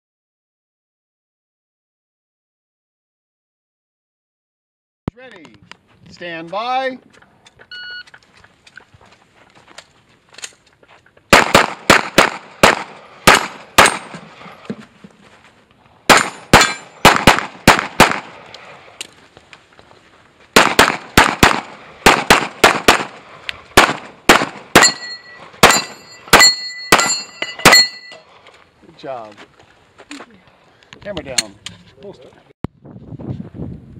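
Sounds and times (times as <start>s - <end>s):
pistol shots: 11.3s - 14.2s, 16.1s - 18.4s, 20.6s - 28.1s
steel targets ringing: 16.1s - 17.0s, 24.8s - 28.3s.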